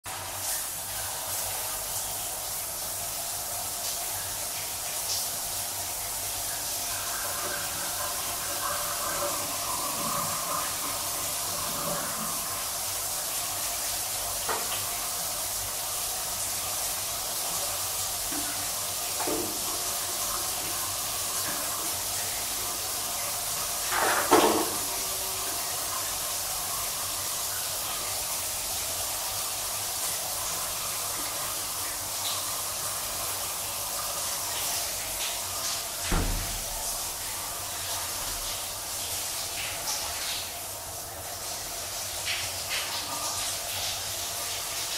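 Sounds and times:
shower water spraying: 0:00.1 - 0:44.9
loud water splash: 0:36.0 - 0:37.3.

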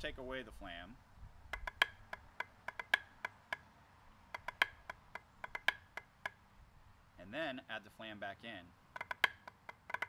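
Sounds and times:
drumsticks tapping practice pad: 0:01.5 - 0:03.7, 0:04.3 - 0:06.4, 0:08.9 - 0:10.0.

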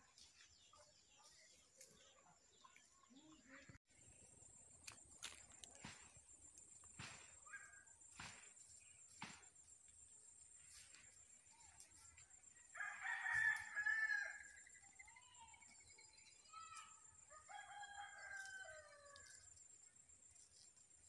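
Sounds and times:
rooster crowing: 0:12.7 - 0:14.5, 0:17.3 - 0:19.4.

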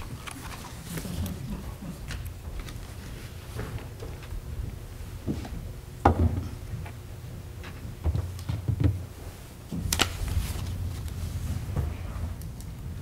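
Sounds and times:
footsteps and shuffling: 0:00.0 - 0:05.8
low steady hum: 0:00.0 - 0:13.0.

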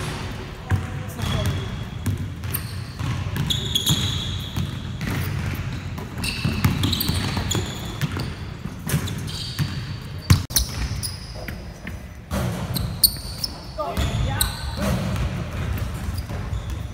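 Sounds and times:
basketballs dribbled on hardwood: 0:00.0 - 0:16.9
sneakers squeaking on wood: 0:00.8 - 0:16.9.

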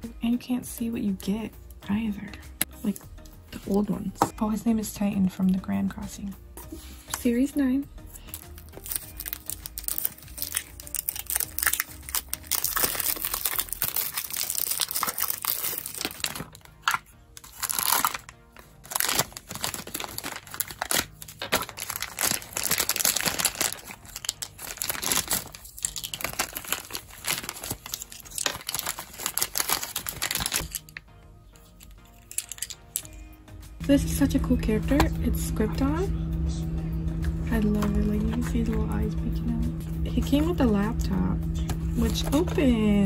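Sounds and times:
plastic wrapping crinkling: 0:08.2 - 0:31.0, 0:31.8 - 0:33.1.

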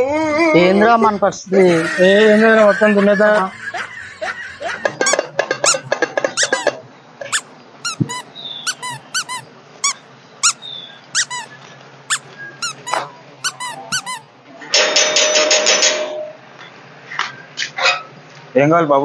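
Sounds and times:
high chirps: 0:04.6 - 0:14.2
short high squeaks: 0:05.0 - 0:10.6, 0:11.2 - 0:14.3.

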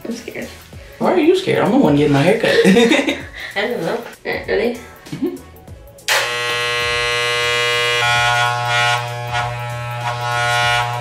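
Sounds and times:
electric hair clippers buzzing: 0:06.1 - 0:11.0.

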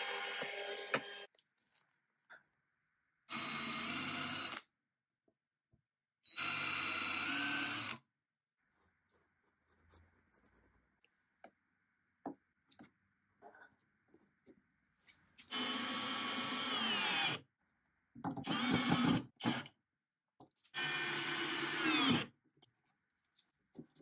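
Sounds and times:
power drill countersinking wood: 0:18.4 - 0:19.7, 0:20.8 - 0:22.3.

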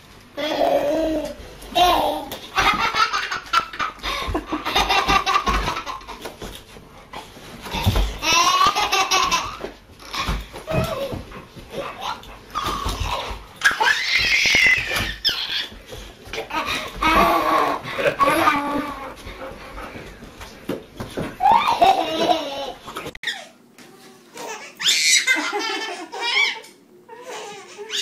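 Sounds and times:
baby laughing: 0:00.4 - 0:06.3, 0:07.7 - 0:11.2, 0:11.8 - 0:15.8, 0:16.4 - 0:19.2, 0:21.4 - 0:23.6, 0:24.4 - 0:28.0.

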